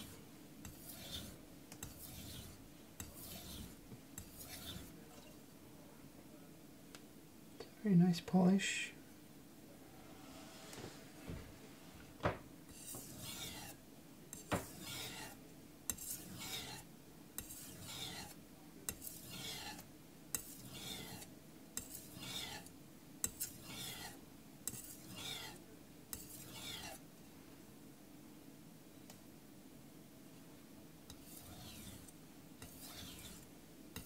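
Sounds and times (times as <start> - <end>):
knife scraping on whetstone: 0.0 - 5.0, 12.7 - 27.0, 31.1 - 34.0.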